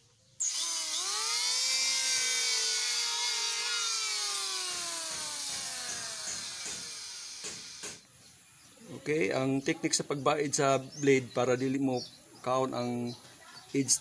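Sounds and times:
electric planer whining: 0:00.4 - 0:08.0.

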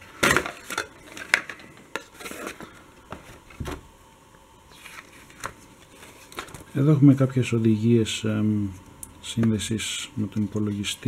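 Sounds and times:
cardboard and paper rustling: 0:00.2 - 0:03.8, 0:04.7 - 0:07.3.

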